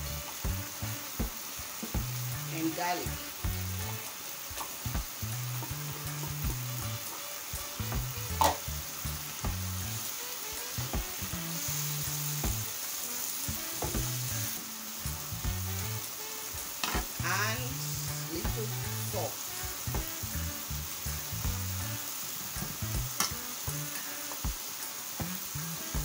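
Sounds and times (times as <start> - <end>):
food sizzling in frying pan: 0.0 - 26.0.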